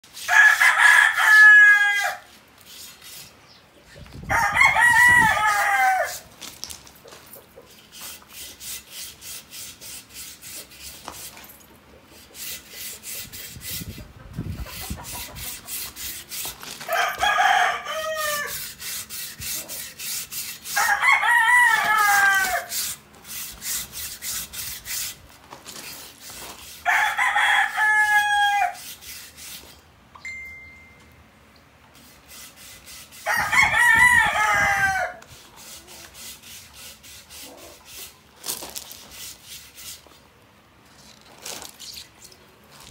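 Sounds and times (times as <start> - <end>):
rooster crowing: 0.2 - 2.3, 4.3 - 6.3, 16.9 - 18.6, 20.7 - 22.7, 26.8 - 28.8, 33.2 - 35.2
faint rhythmic rubbing: 5.5 - 17.4, 18.2 - 21.0, 35.1 - 40.2.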